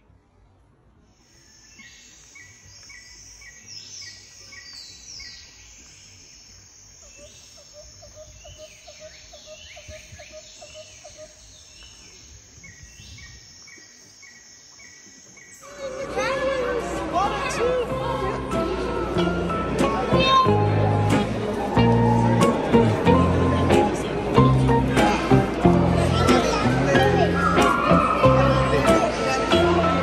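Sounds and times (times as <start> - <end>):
steady high hiss: 0.9 - 15.7
birds singing and calling: 1.2 - 15.6.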